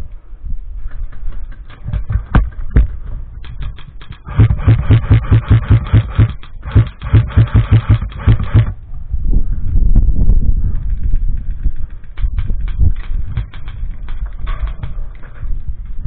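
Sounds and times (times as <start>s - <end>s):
sharp knocking clicks: 1.1s - 8.7s, 12.2s - 14.9s
low thumps: 1.2s - 9.3s.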